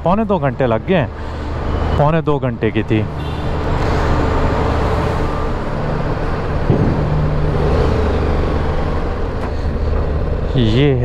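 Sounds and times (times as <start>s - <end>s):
sharp knock: 6.6s - 7.5s.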